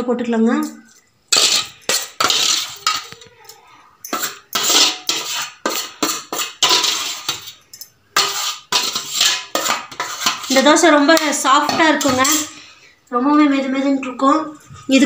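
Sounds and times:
steel bowl and jar clanking: 0.9s - 12.6s.

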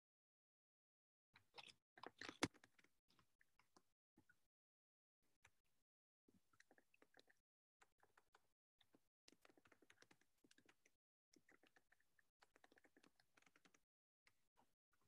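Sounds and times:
faint keyboard typing: 6.6s - 13.8s.

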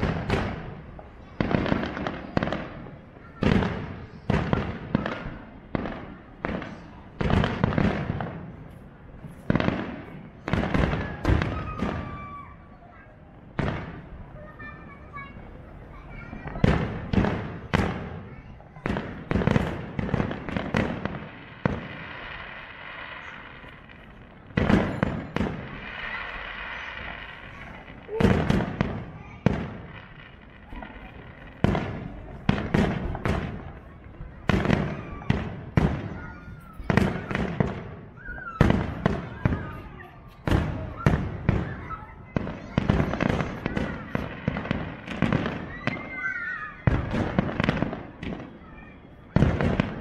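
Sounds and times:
fireworks bangs and crackles: 0.0s - 50.0s
firework shells bursting: 18.8s - 36.1s.

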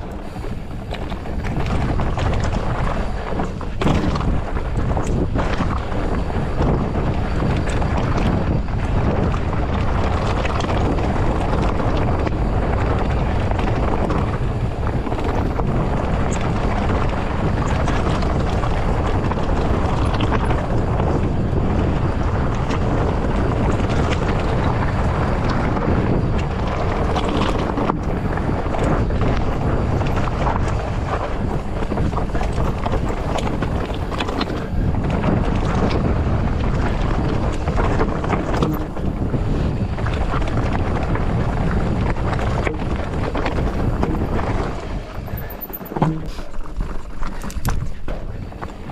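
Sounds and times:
bike rattling: 0.0s - 48.9s
tyres crunching on dirt trail: 0.0s - 48.9s
wind buffeting microphone: 0.0s - 48.9s.

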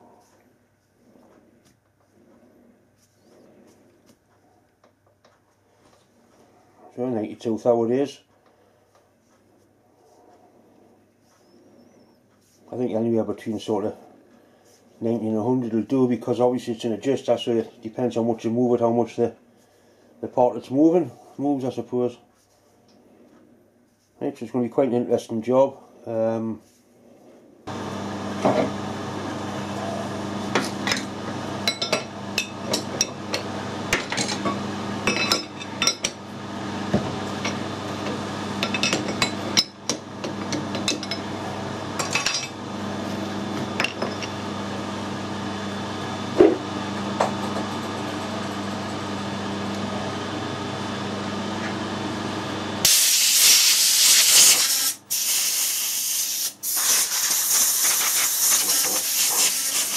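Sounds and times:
low machine hum: 26.9s - 52.8s
air blow gun hissing: 52.8s - 59.9s.

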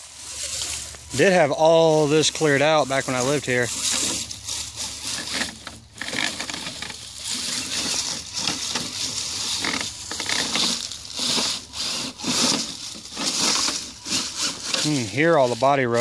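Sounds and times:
dry leaves and twigs crackling: 0.0s - 16.0s
rc truck driving: 0.0s - 16.0s
tires rubbing on body shell: 0.0s - 16.0s.

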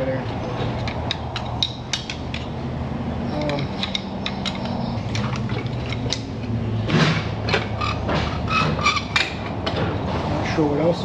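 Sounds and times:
wrench clicking against metal: 0.8s - 2.5s, 3.3s - 4.8s.

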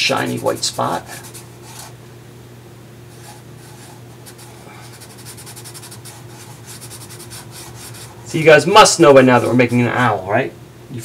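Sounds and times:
faint low hum: 0.0s - 11.0s
pen scribbling on paper: 0.1s - 1.9s, 3.1s - 8.3s.

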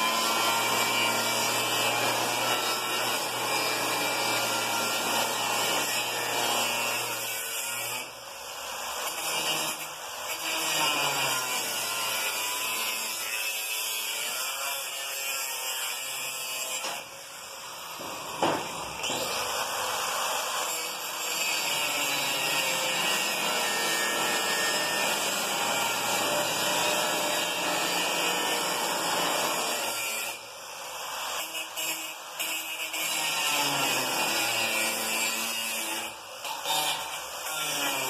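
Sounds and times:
angle grinder cutting steel: 0.0s - 38.0s
sharp knock: 18.0s - 18.8s.

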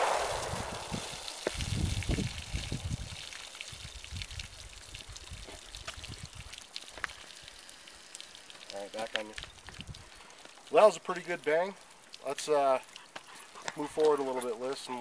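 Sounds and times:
gunshot echo: 0.0s - 1.6s
low thumps: 0.0s - 3.0s
water dripping: 0.0s - 15.0s
water pouring onto ground: 0.0s - 15.0s.

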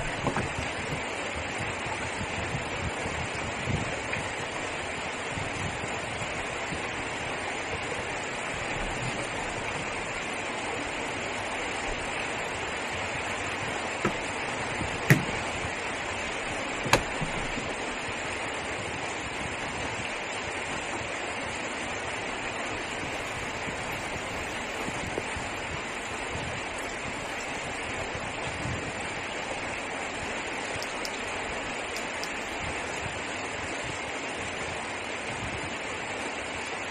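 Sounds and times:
heavy rain on car: 0.0s - 33.6s
sharp knocks: 14.0s - 15.5s.

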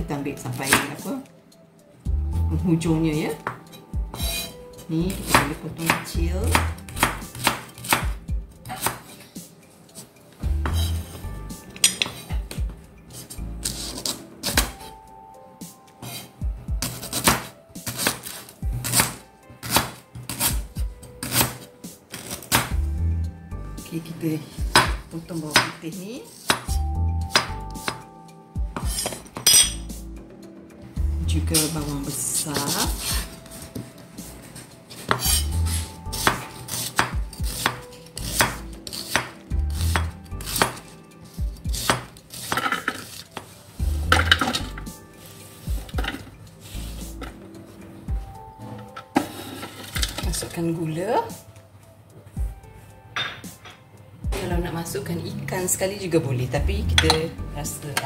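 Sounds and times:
knife chopping on wooden board: 3.4s - 4.5s, 5.2s - 9.2s, 16.8s - 22.8s, 26.4s - 28.1s, 28.8s - 29.6s, 34.9s - 40.9s, 41.6s - 43.5s.

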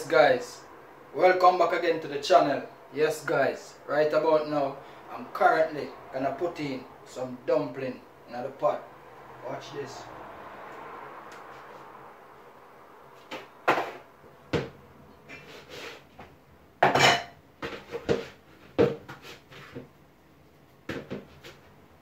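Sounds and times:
dishes knocking on worktop: 16.8s - 19.1s.

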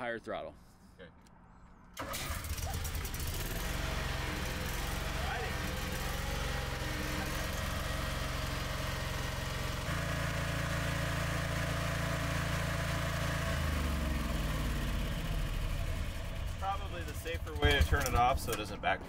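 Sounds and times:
generator engine running: 2.0s - 19.0s.

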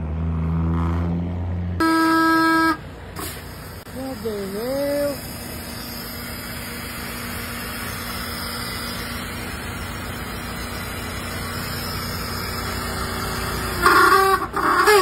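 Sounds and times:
diesel engine idling: 1.7s - 15.0s.

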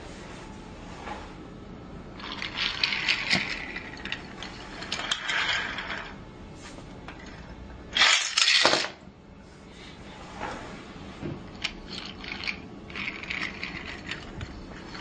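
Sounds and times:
toy train clattering and ratcheting: 2.2s - 6.2s, 8.0s - 8.9s, 11.5s - 15.0s.

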